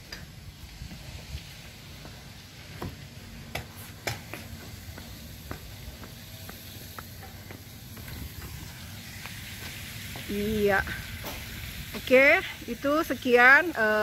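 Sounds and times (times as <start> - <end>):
open air rumble and hiss: 0.0 - 14.0
footsteps on hard paving: 2.0 - 10.4.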